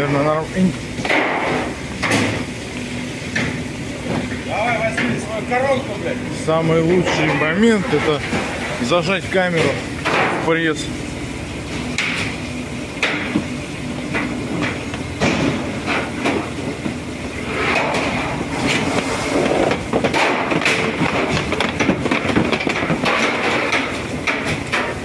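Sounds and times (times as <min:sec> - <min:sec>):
machinery hum: 0:00.0 - 0:25.0
metal knocks and clanks: 0:19.7 - 0:25.0.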